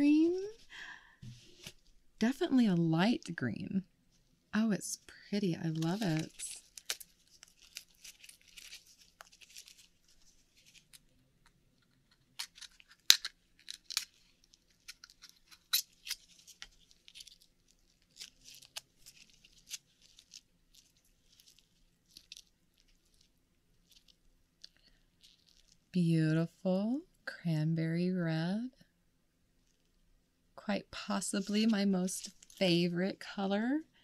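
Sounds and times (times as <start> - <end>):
oyster shell crackling and scraping: 5.8 - 25.9.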